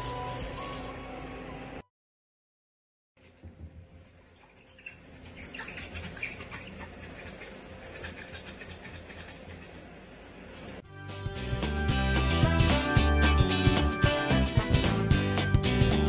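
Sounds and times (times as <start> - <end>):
animals squeaking: 3.2 - 10.8.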